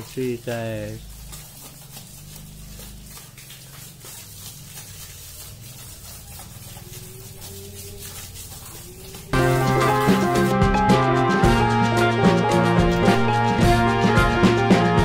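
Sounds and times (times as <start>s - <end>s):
hose water spraying and splashing: 0.0s - 15.0s.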